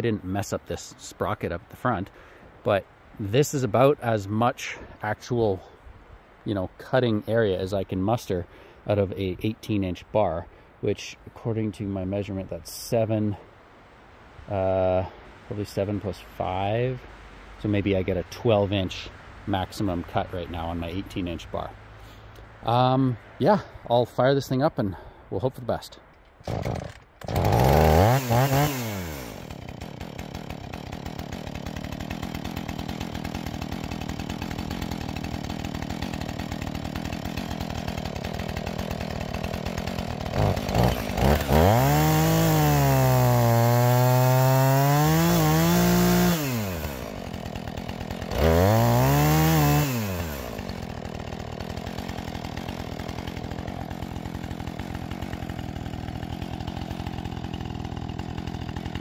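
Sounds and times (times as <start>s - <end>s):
chainsaw revving and idling: 26.4s - 59.0s.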